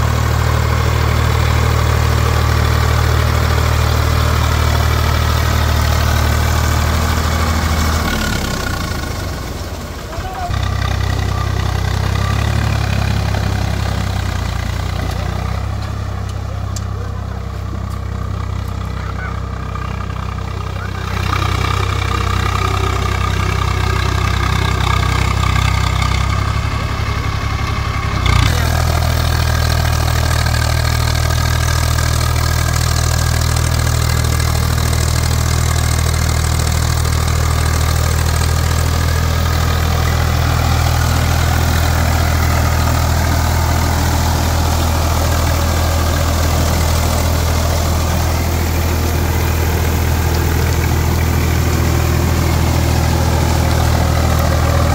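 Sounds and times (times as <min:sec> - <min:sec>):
tractor diesel engine running: 0:00.0 - 0:54.9
engine knock: 0:28.2 - 0:54.9.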